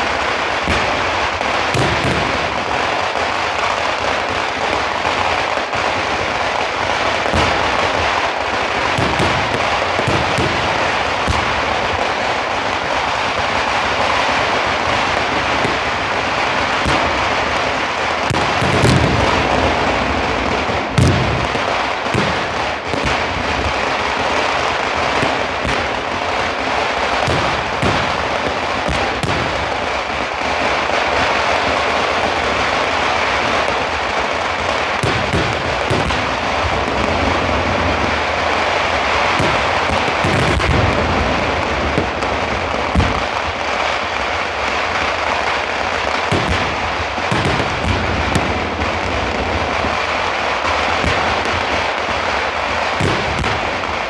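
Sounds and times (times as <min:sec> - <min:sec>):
fireworks bangs: 0:00.0 - 0:54.0
fireworks crackling: 0:00.0 - 0:54.0.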